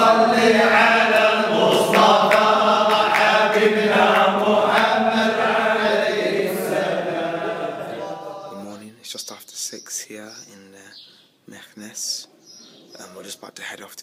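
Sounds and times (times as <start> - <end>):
men chanting together: 0.0 - 8.7.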